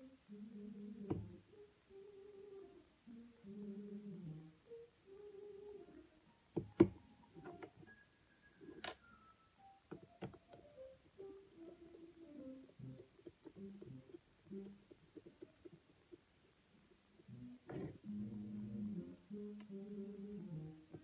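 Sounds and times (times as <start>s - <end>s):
person humming softly: 0.0s - 6.2s, 11.2s - 15.5s, 17.3s - 21.0s.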